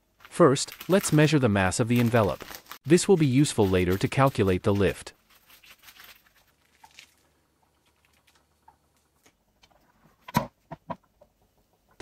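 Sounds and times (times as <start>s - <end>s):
foil balloon crinkling: 0.0s - 9.4s.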